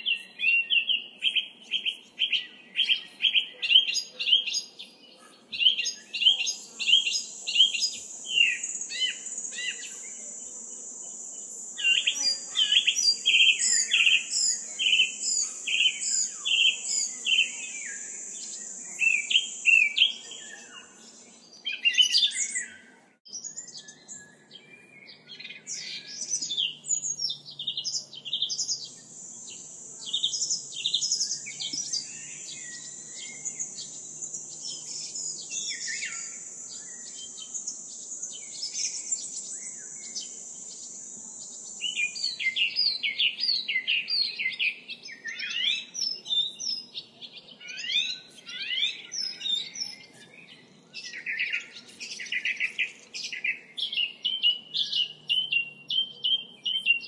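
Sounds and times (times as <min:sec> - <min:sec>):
birds chirping: 0:00.0 - 0:57.0
high-pitched insect buzz: 0:05.6 - 0:47.0.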